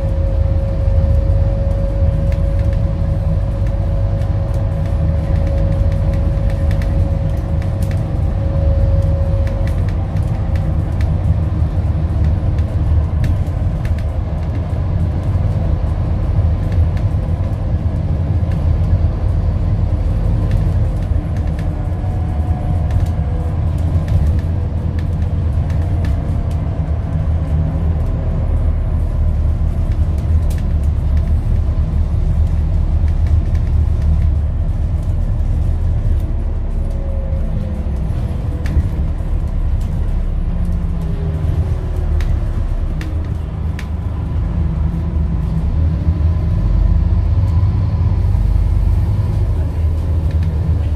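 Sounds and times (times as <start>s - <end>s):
bus diesel engine rumbling: 0.0s - 50.9s
small rattles and clicks: 0.8s - 19.2s, 20.2s - 37.0s.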